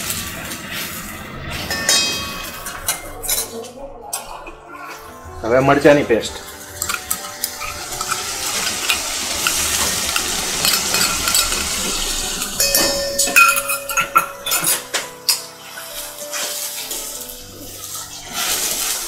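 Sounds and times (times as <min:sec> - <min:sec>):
spoon clinking against steel: 0:01.7 - 0:04.4, 0:06.6 - 0:15.5
paste sizzling in hot oil: 0:06.0 - 0:19.0
spoon scraping steel bowl: 0:06.4 - 0:16.6.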